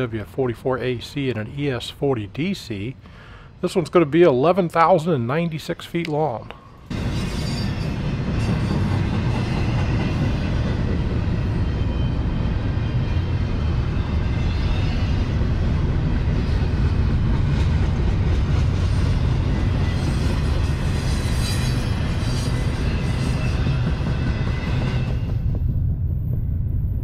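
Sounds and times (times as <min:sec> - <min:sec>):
freight train wheels rumbling: 0:06.9 - 0:27.0.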